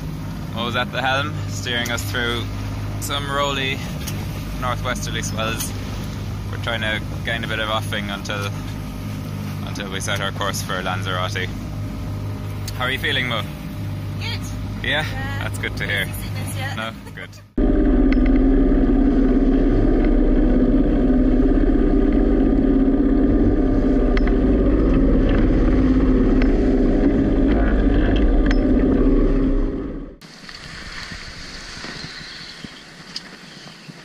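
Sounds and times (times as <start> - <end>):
boat diesel engine running: 0.0 - 31.8
water rushing past hull: 0.0 - 33.8
wind on microphone: 18.4 - 34.0.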